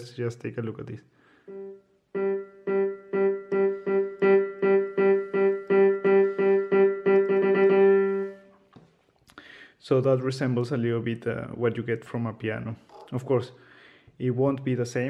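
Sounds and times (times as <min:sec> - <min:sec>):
keyboard piano note repeated: 0:01.5 - 0:08.5.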